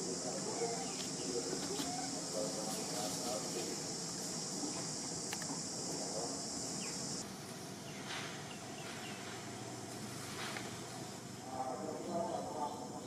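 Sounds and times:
high-pitched insect drone: 0.0s - 8.0s
outdoor background noise: 0.0s - 13.0s.

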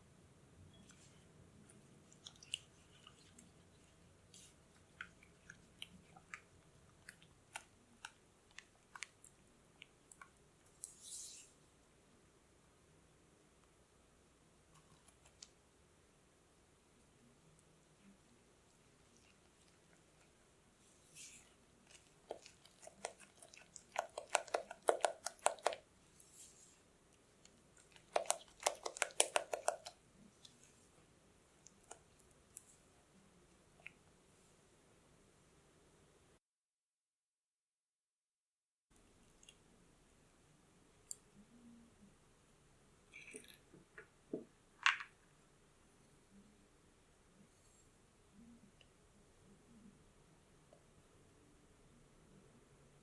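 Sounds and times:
wet squelches: 0.7s - 11.6s, 18.0s - 34.1s.

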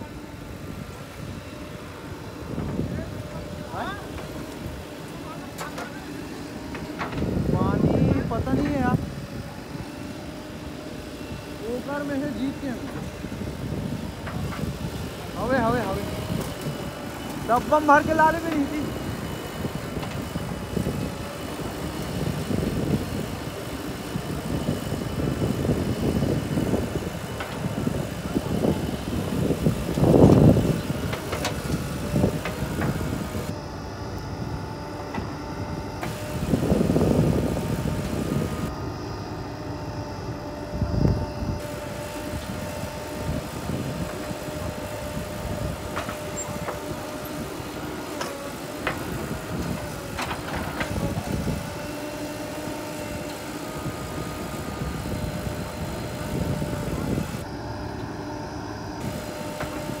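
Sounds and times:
diesel engine running: 0.0s - 60.0s.

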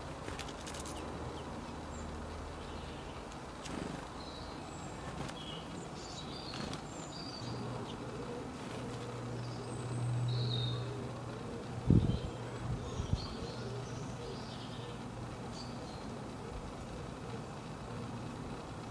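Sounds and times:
low steady drone: 7.0s - 18.9s.

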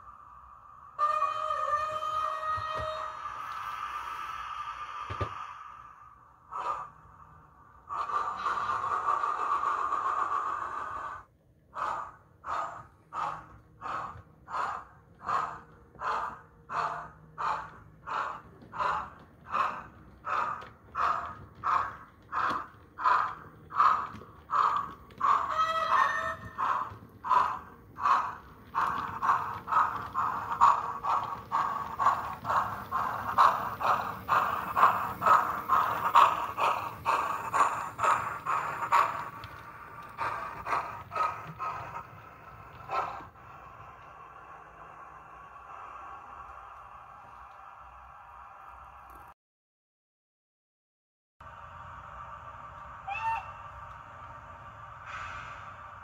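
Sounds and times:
hiss of steam: 3.1s - 6.8s, 51.6s - 56.0s
steam locomotive exhaust chuff: 3.1s - 49.3s, 51.4s - 56.0s.

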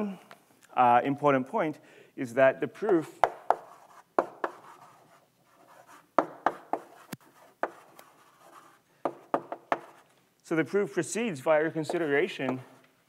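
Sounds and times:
chalk tapping on blackboard: 2.8s - 10.0s, 11.7s - 12.8s
chalk scratching: 3.3s - 10.1s, 11.8s - 12.8s.

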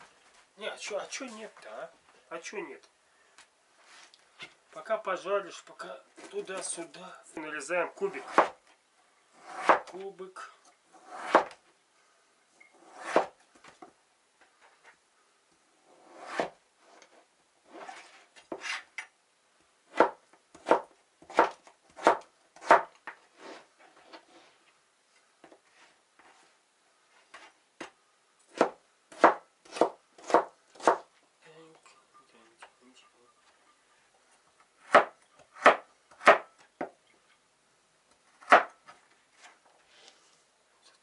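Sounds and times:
knife chopping on plastic board: 8.3s - 8.6s, 19.9s - 22.9s, 28.5s - 31.1s, 34.8s - 36.5s, 38.4s - 38.7s.

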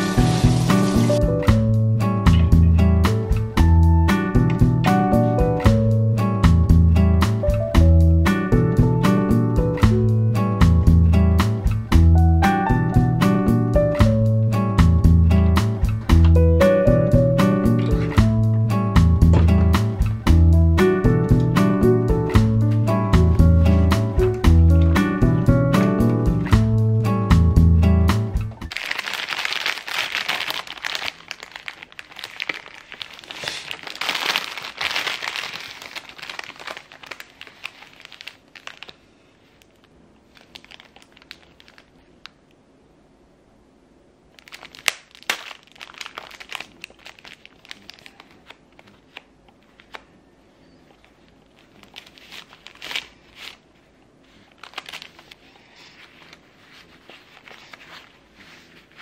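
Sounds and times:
paper tissue rustling: 0.0s - 1.3s, 22.8s - 24.3s, 28.7s - 42.1s, 44.4s - 59.0s
plastic wrapper crinkling: 28.6s - 42.4s, 44.3s - 50.1s, 50.9s - 59.0s.

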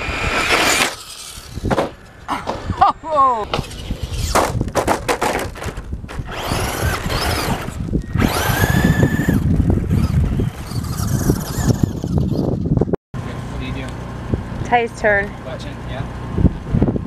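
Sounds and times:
rc truck motor whine: 0.0s - 1.7s, 3.5s - 4.4s, 6.1s - 12.6s.

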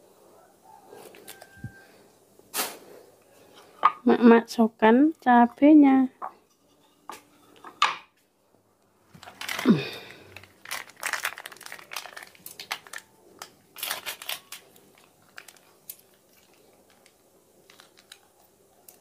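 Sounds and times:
plastic sachet crinkling: 9.1s - 19.0s.

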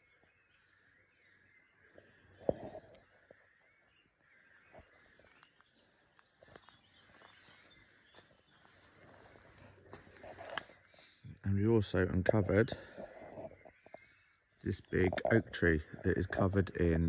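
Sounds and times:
faint birdsong: 0.0s - 17.0s
twigs snapping under footsteps: 4.7s - 11.5s.

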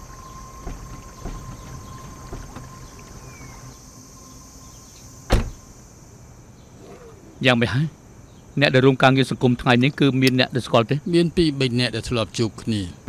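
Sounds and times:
footsteps: 0.0s - 3.7s
car door shutting: 0.0s - 3.8s, 5.3s - 5.7s
faint high whine: 0.0s - 13.0s
light knocks: 0.6s - 3.5s.

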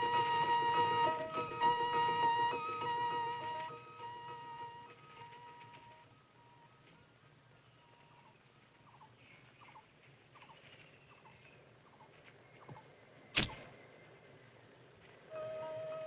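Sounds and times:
small birds chirping: 4.8s - 15.2s.

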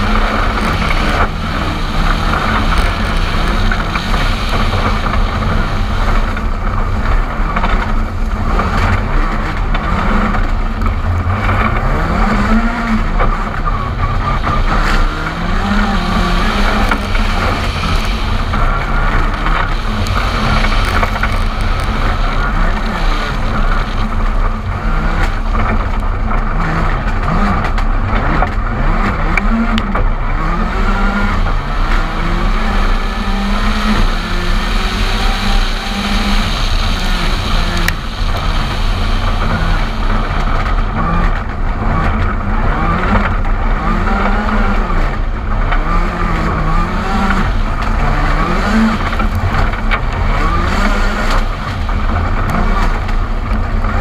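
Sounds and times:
rally car engine revving: 0.0s - 54.0s
wind and road noise: 0.0s - 54.0s.

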